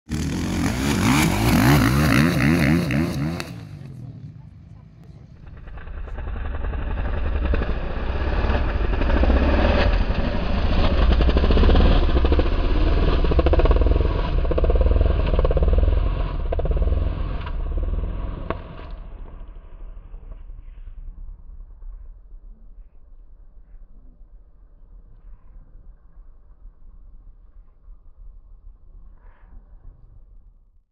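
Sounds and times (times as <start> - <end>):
dirt bike engine revving: 0.1 - 18.8.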